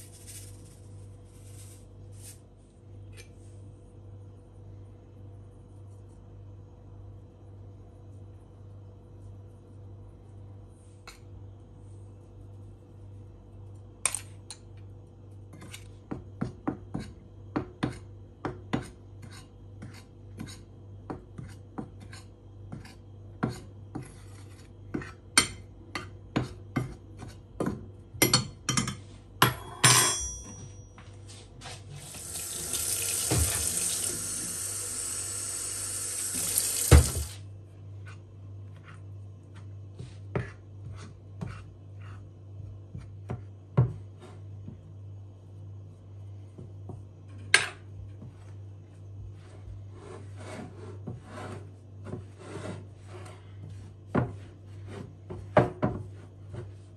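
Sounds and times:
spoon clinking ceramic bowl: 29.4 - 30.8
liquid pouring into bowl: 32.1 - 34.3.

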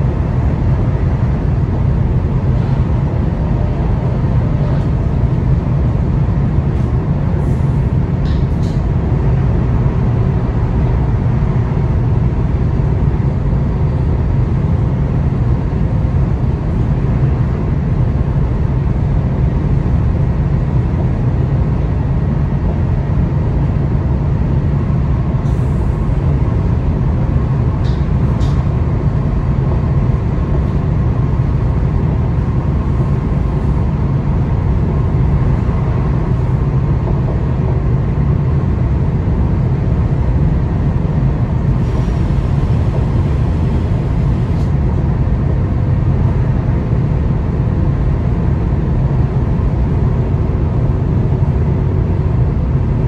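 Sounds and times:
electric train rumbling: 0.0 - 53.0.

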